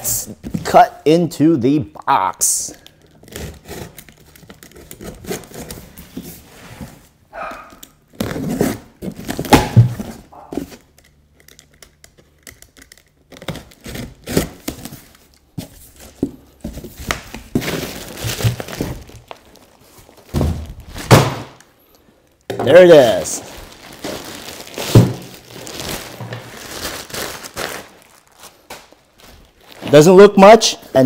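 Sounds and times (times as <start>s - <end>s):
tape tearing: 2.8s - 6.2s, 7.6s - 16.2s, 23.1s - 30.0s
box cutter slicing packing tape: 12.9s - 14.9s
plastic bag crinkling: 17.4s - 21.1s, 22.9s - 30.2s
cardboard flaps scraping and thudding: 20.0s - 21.5s.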